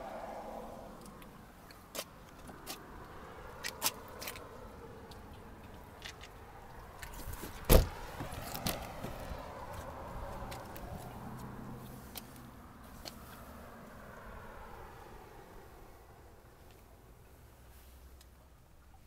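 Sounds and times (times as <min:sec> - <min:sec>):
car door thump: 0:07.6 - 0:08.4.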